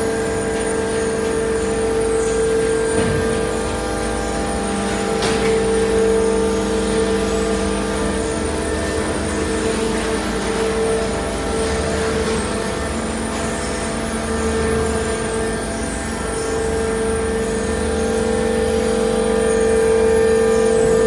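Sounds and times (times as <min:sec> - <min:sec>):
shredding machinery humming and whining: 0:00.0 - 0:21.0.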